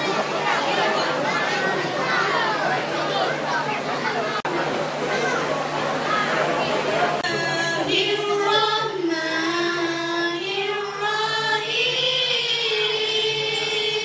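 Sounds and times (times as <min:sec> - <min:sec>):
children and woman singing: 0:07.2 - 0:14.0.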